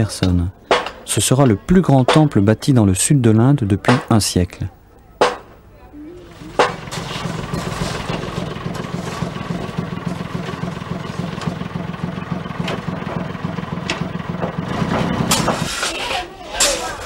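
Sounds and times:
truck engine idling: 6.2s - 15.7s.

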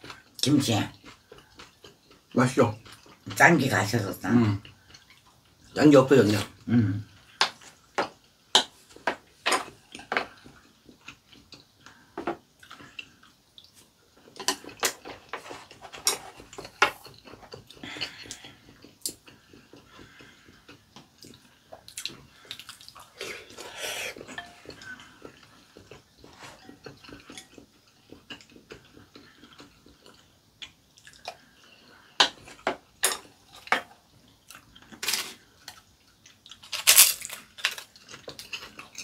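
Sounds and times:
wet slurping and chewing: 9.7s - 36.7s
spoons and chopsticks clinking bowls: 24.3s - 24.8s.

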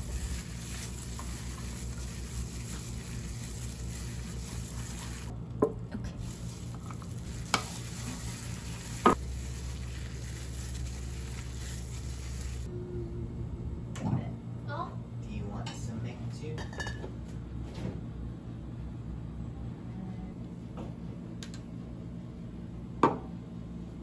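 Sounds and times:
wet squelching of raw fish: 6.2s - 12.7s.

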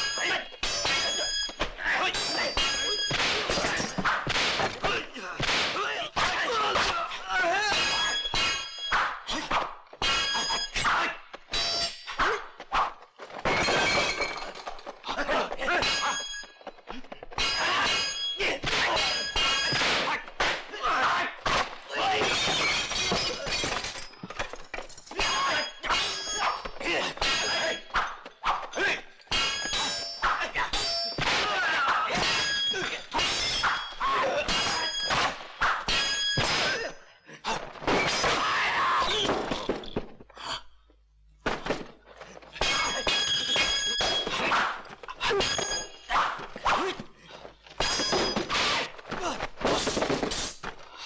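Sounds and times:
swords clashing: 0.0s - 7.0s, 7.6s - 9.1s, 15.4s - 16.5s, 17.3s - 24.3s, 25.1s - 37.0s, 42.6s - 47.0s, 47.8s - 50.7s
people shouting: 0.0s - 11.2s, 17.4s - 23.5s, 25.2s - 35.9s, 44.2s - 47.0s
punches and kicks: 2.3s - 6.9s, 17.5s - 23.8s, 30.7s - 33.8s, 47.8s - 50.8s
things breaking: 13.0s - 36.9s, 37.6s - 40.4s, 41.4s - 51.0s.

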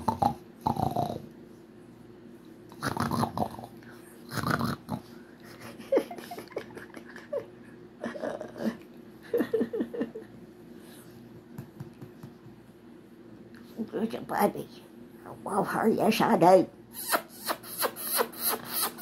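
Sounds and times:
small dog grunting and snorting: 0.0s - 1.3s, 2.7s - 5.2s.

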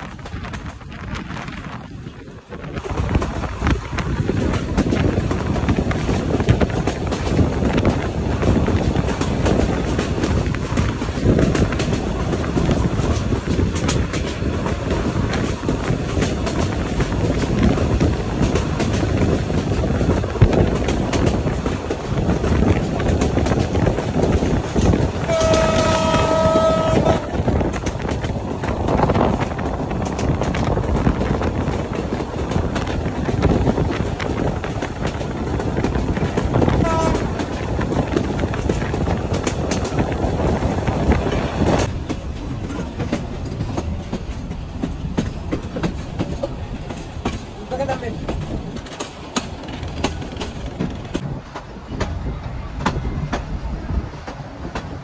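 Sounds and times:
clickety-clack of rail joints: 0.0s - 55.0s
train wheels rumbling on rail: 0.0s - 55.0s
locomotive horn: 25.2s - 27.4s, 36.8s - 37.5s.

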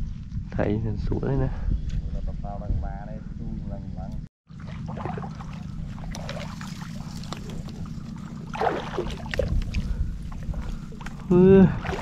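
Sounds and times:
wind on microphone: 0.0s - 4.2s, 5.6s - 12.0s
water sloshing: 4.5s - 12.0s
reed stems brushing: 4.9s - 12.0s.

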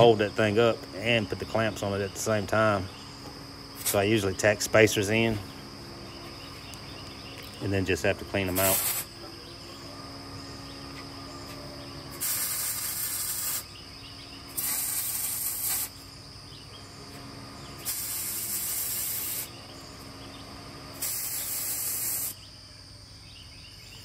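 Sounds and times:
welder sizzling hiss: 3.8s - 4.1s, 8.5s - 9.1s, 12.1s - 13.7s, 14.5s - 16.0s, 17.8s - 19.6s, 20.9s - 22.4s.

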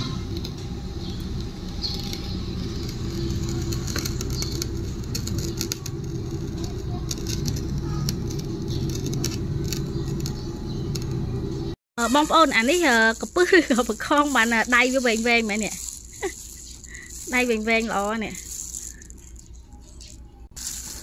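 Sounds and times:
low motor hum: 0.0s - 19.8s.

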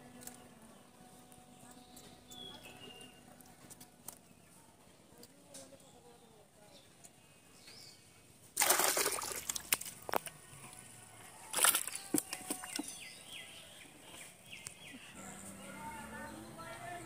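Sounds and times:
fish splashing in water: 8.6s - 10.1s, 11.5s - 12.9s.

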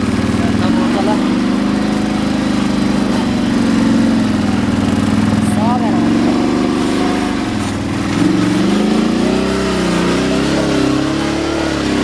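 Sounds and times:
atv engine running: 0.0s - 12.0s.

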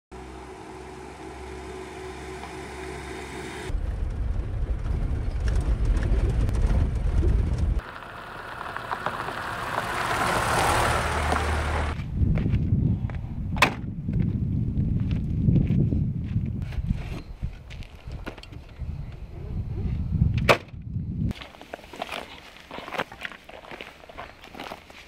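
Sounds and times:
car engine running: 0.1s - 12.0s
tyres on loose gravel: 3.7s - 12.1s, 21.3s - 25.0s.

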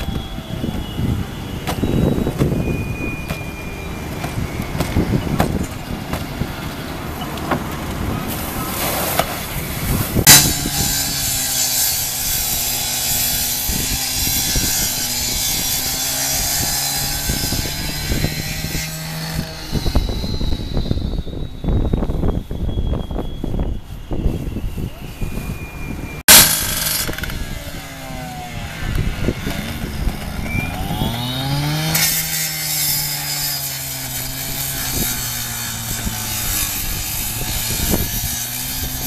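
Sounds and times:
fire hose stream hissing: 8.2s - 10.9s
sharp bang: 10.2s - 11.7s, 26.3s - 28.5s.

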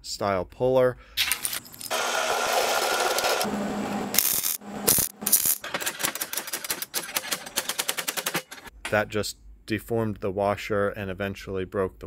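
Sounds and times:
machine hum: 1.7s - 8.7s.

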